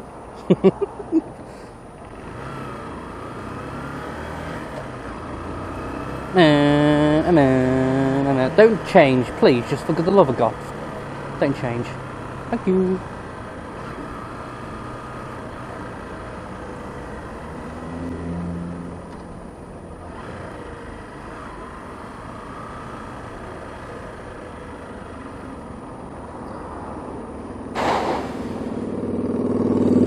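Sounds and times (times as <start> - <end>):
wind and road noise: 0.0 - 30.0
motorcycle engine: 1.5 - 30.0
sharp hiss: 27.7 - 28.9.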